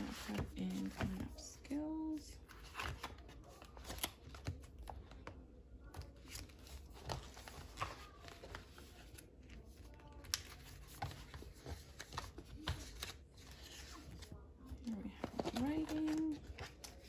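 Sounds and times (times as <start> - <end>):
paper pages rustling: 0.0 - 1.5, 6.0 - 17.0.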